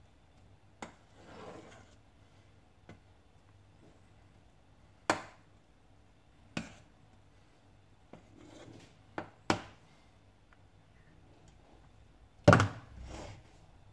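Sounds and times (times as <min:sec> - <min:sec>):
faint spoon scrape: 0:01.1 - 0:02.0, 0:08.2 - 0:08.9, 0:13.0 - 0:13.6.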